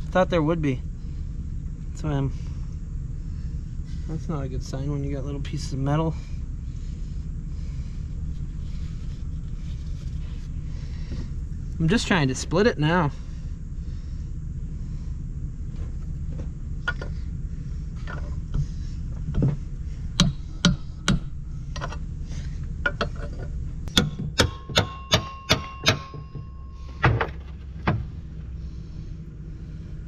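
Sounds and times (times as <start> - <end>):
low rumble: 0.0 - 24.4, 26.2 - 30.0
metallic knocks on gearbox housing: 22.8 - 28.1.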